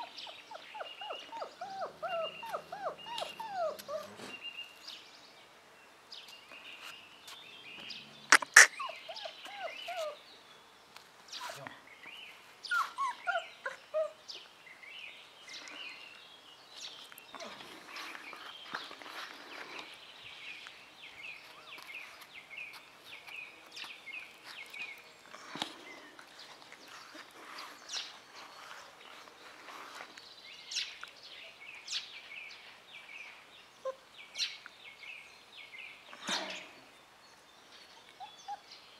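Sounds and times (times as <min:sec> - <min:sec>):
puppies yelping: 0:00.0 - 0:04.3, 0:08.3 - 0:10.2, 0:12.7 - 0:14.2.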